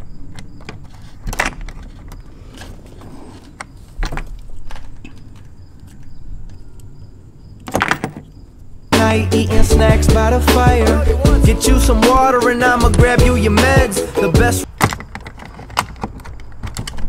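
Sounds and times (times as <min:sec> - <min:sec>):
small metal clicks and rattles: 0:14.8 - 0:17.0.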